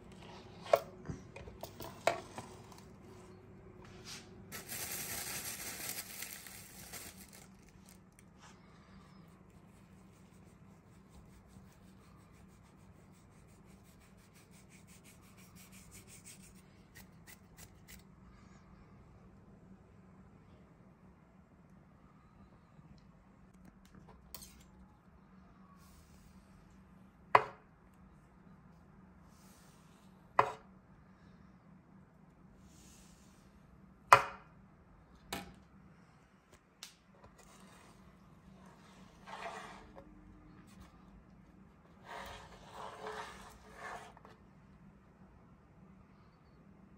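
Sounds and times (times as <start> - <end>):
flour sprinkled over dough: 2.4 - 12.8
knife scraping through dough: 38.6 - 40.0, 42.0 - 44.4.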